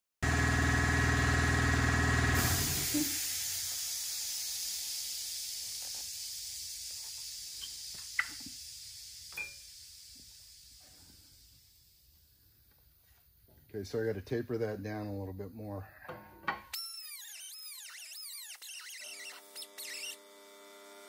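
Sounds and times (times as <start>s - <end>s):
air hissing: 2.4s - 12.7s.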